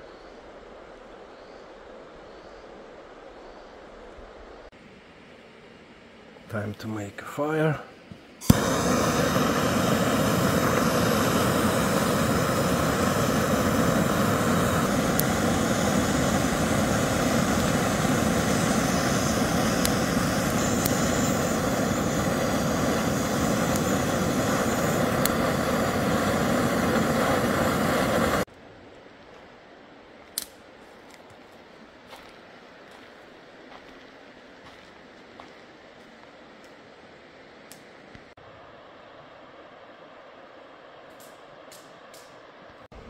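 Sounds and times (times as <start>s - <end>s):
steady rushing roar: 8.4s - 28.5s
click: 15.1s - 15.3s, 37.7s - 38.2s, 41.1s - 42.4s.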